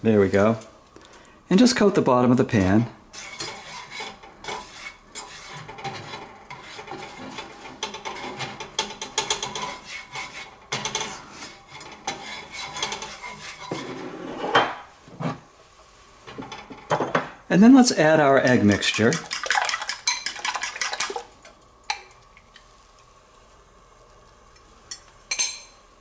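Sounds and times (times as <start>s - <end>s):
spatula scraping a frying pan: 3.1s - 14.6s.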